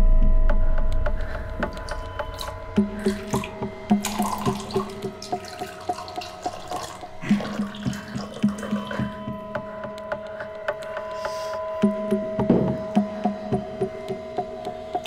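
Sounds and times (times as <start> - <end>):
steady sustained tone: 0.0 - 15.0
liquid dripping and trickling: 1.6 - 10.9.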